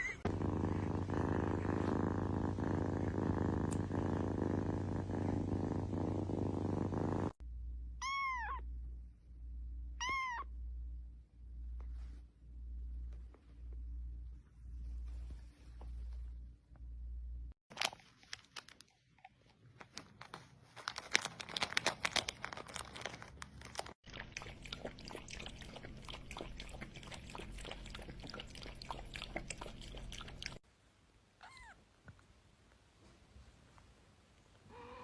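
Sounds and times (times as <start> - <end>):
pet chewing crunchily: 21.0 - 30.6.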